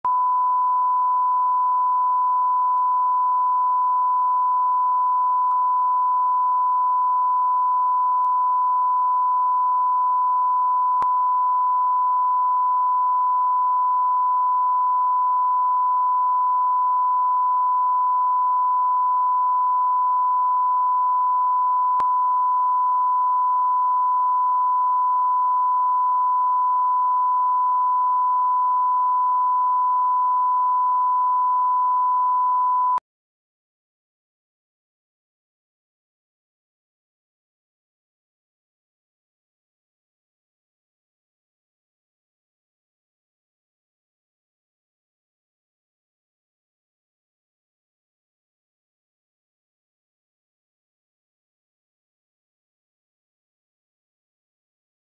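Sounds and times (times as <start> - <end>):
pure reference tone beep: 0.0 - 33.0.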